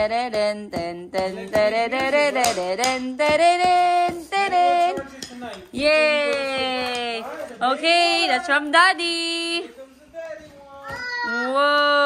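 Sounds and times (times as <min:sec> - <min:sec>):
music with singing: 0:00.0 - 0:05.4.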